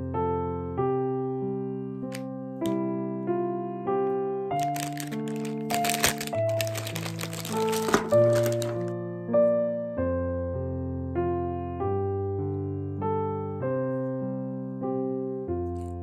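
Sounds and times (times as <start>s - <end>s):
plastic bag crinkling: 4.6s - 8.9s.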